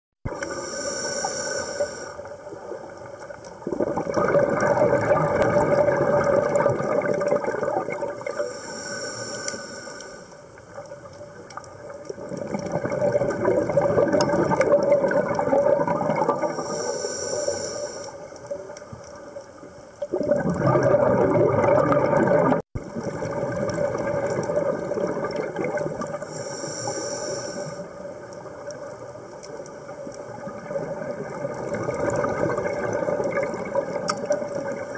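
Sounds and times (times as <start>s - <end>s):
scuba regulator hissing inhale: 0.3s - 2.4s, 8.3s - 10.6s, 16.4s - 18.4s, 26.2s - 28.1s
exhaled bubbles rushing: 2.6s - 8.3s, 11.8s - 16.6s, 20.0s - 26.3s, 30.2s - 34.9s.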